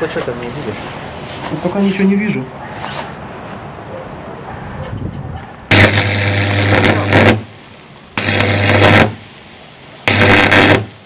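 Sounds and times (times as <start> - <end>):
electric arc buzzing crackle: 5.7 - 11.0.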